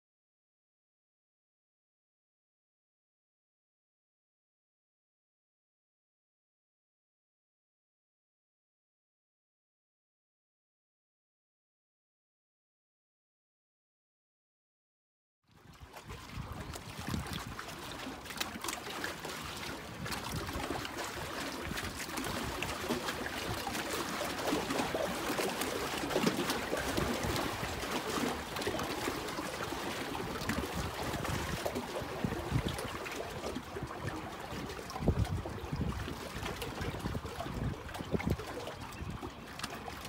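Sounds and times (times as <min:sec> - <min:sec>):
waves lapping against pilings: 0:15.5 - 0:40.0
wind buffeting microphone: 0:15.6 - 0:40.0.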